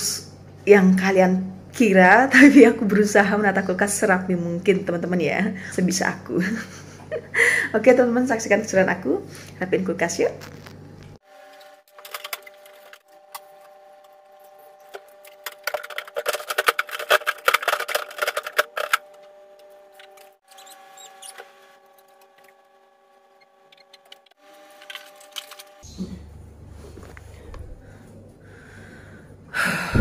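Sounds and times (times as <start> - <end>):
faint steady hum: 0.0 - 30.0
containers clicking and knocking: 14.9 - 19.2.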